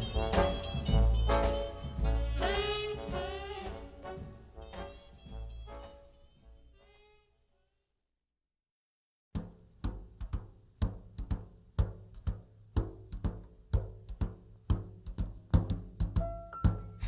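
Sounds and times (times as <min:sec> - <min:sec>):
song with steady drum beat: 0:00.0 - 0:05.8, 0:09.4 - 0:17.0.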